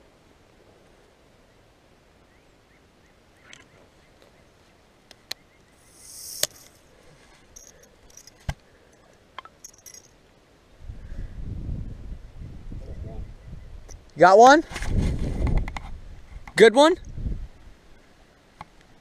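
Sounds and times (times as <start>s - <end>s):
reel clicks: 5.1s - 6.8s
fishing reel spool whirring: 5.8s - 6.8s.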